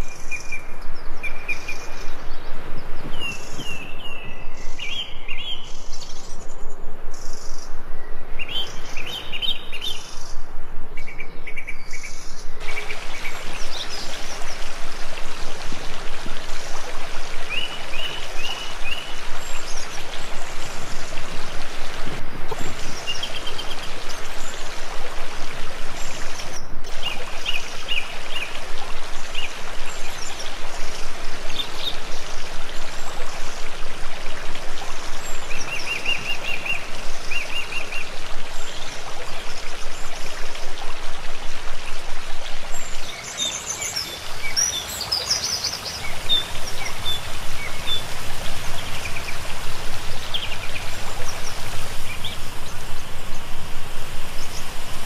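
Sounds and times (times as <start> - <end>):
flowing water rushing: 0.0 - 55.0
small birds chirping: 42.7 - 55.0.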